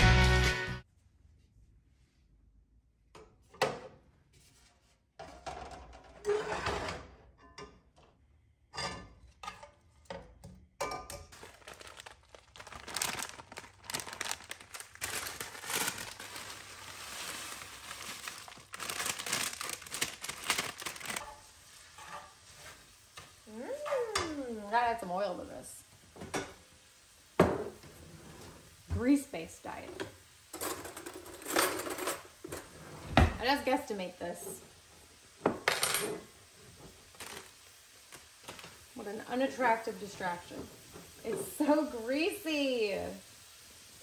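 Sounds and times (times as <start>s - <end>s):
plastic bag crinkling: 11.3s - 21.5s, 37.0s - 38.9s
metal tongs scraping skillet: 21.2s - 23.0s.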